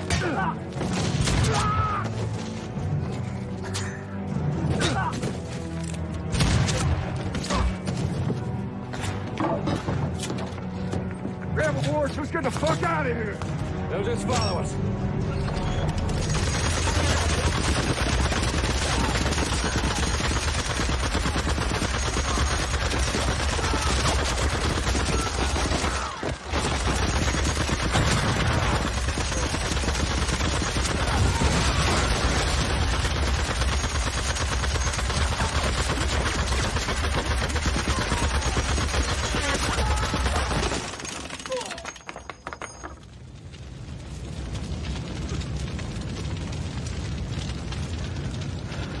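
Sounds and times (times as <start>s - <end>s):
gatling gun rapid fire: 16.2s - 41.7s.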